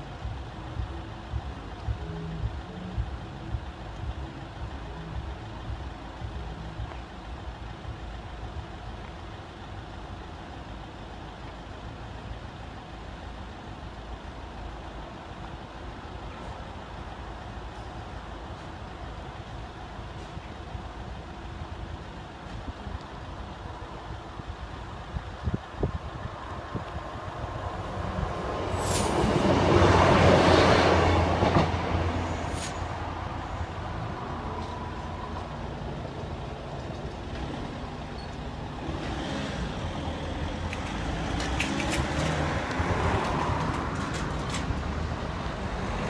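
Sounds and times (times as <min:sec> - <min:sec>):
road traffic: 0:00.0 - 0:46.0
train passing: 0:26.3 - 0:46.0.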